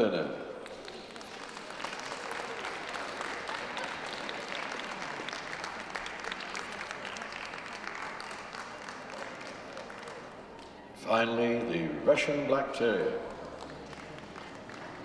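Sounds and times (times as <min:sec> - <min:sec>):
audience applauding: 0:00.6 - 0:10.8, 0:13.3 - 0:15.0.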